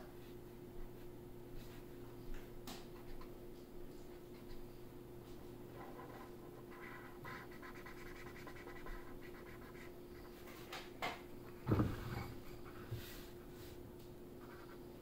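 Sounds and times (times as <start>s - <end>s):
faint steady hum: 0.0s - 15.0s
marker scratching on paper: 5.8s - 10.4s.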